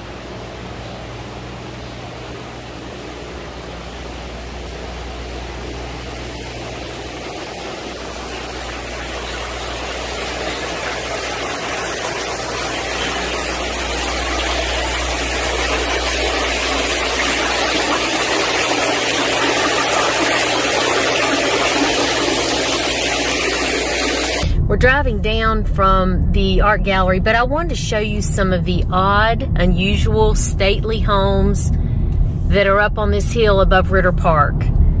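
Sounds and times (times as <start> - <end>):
low steady hum: 0.0 - 35.0
fountain water splashing into pool: 4.5 - 24.5.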